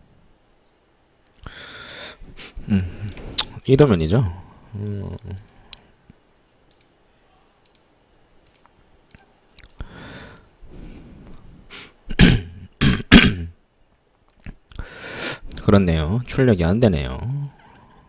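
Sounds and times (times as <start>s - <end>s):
computer mouse clicking: 6.6s - 6.9s, 7.6s - 10.5s.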